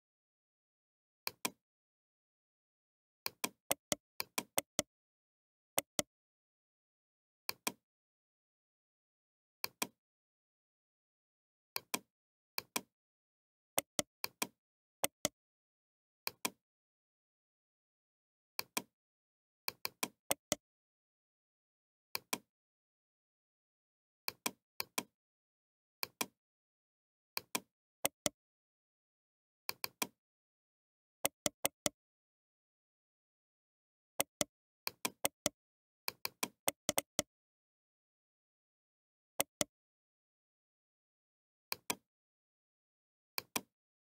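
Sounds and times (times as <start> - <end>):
computer mouse clicking: 27.4 - 28.4, 31.2 - 32.0, 34.2 - 37.3, 43.4 - 43.7.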